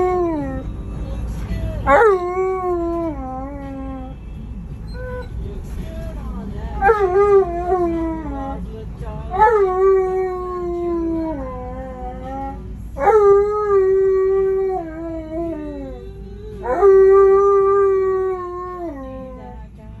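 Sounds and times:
dog howling: 0:00.0 - 0:00.7, 0:06.8 - 0:08.6, 0:09.3 - 0:19.6
vehicle low rumble: 0:00.0 - 0:20.0.

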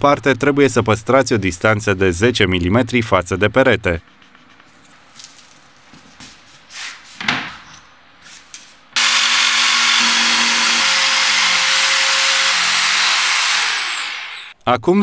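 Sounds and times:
jigsaw cutting floor plank: 0:09.0 - 0:14.5.

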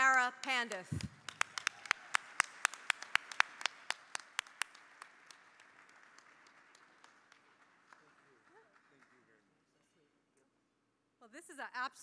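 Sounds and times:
audience applauding: 0:01.0 - 0:09.5.

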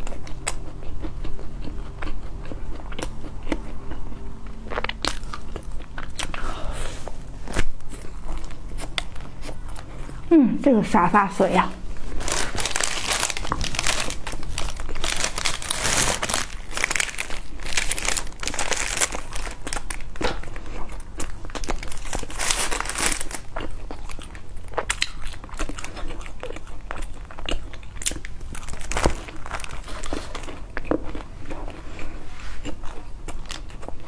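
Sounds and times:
plastic wrappers crinkling: 0:12.0 - 0:23.8, 0:28.1 - 0:30.6.

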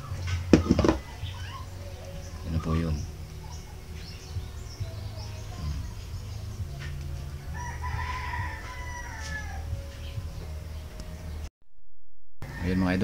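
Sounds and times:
rooster crowing: 0:07.4 - 0:09.8, 0:12.4 - 0:13.0.

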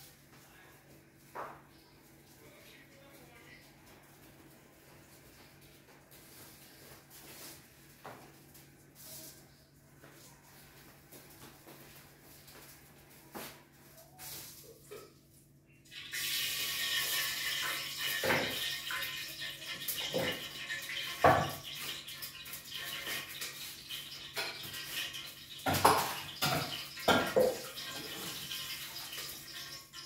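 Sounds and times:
pots and utensils clinking: 0:15.9 - 0:30.0
water running and splashing: 0:15.9 - 0:30.0.

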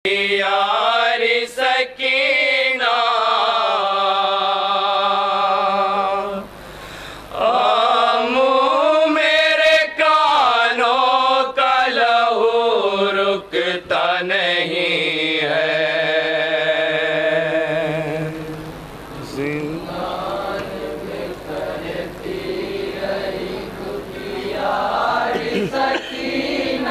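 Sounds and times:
men chanting a mourning lament: 0:19.2 - 0:26.9.

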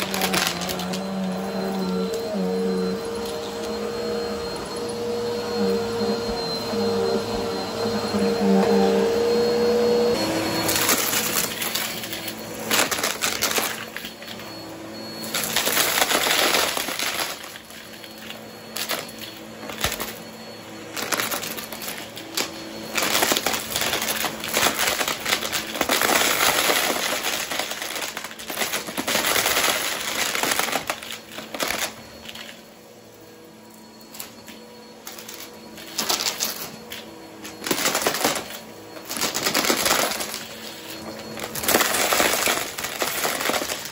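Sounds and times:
small pieces rattling and clattering: 0:00.0 - 0:01.8, 0:10.6 - 0:14.4, 0:15.3 - 0:20.2, 0:20.9 - 0:32.6, 0:35.0 - 0:43.9
vacuum cleaner motor hum: 0:00.0 - 0:43.9.

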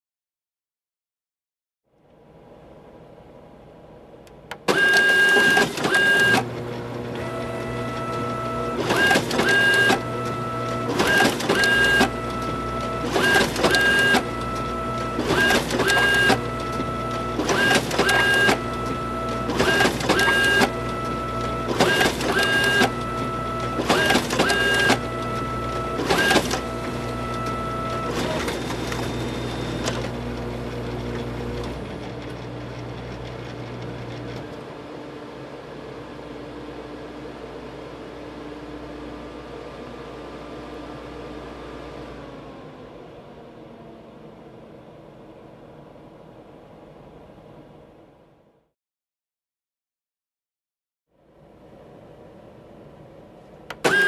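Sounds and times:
photocopier humming: 0:04.3 - 0:35.2, 0:53.4 - 0:54.0
mechanical strokes of paper feed: 0:04.7 - 0:32.0.

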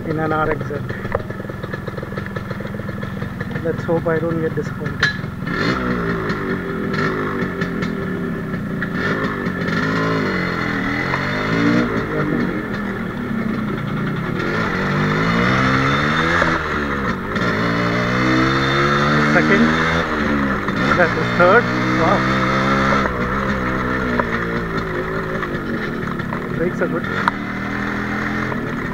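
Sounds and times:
motorcycle engine accelerating: 0:00.0 - 0:28.9.

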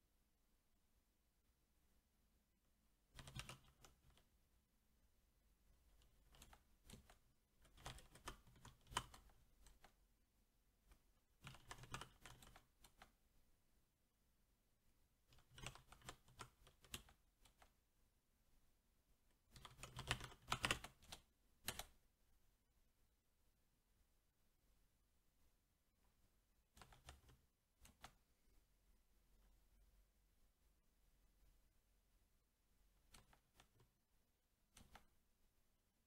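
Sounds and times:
mechanical keyboard typing: 0:03.2 - 0:04.2, 0:06.0 - 0:10.0, 0:11.4 - 0:13.1, 0:15.3 - 0:17.7, 0:19.5 - 0:22.0, 0:26.8 - 0:28.2.

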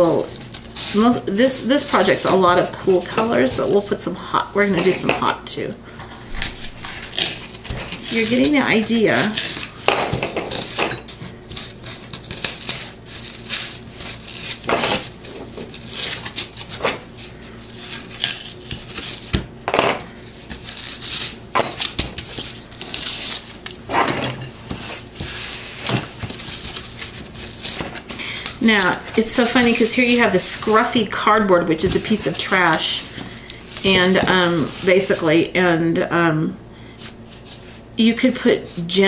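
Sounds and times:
cardboard being scraped and torn: 0:00.0 - 0:02.3, 0:06.4 - 0:09.8, 0:11.4 - 0:19.4, 0:20.2 - 0:23.6, 0:24.7 - 0:30.7.

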